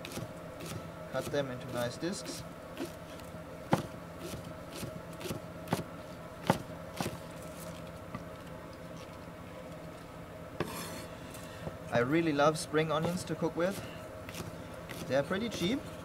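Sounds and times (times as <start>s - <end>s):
knife chopping on wooden board: 3.7s - 7.2s, 13.0s - 15.7s.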